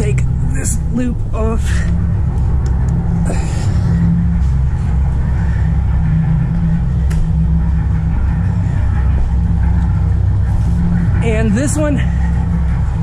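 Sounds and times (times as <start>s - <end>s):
boat engines idling: 0.0s - 13.0s.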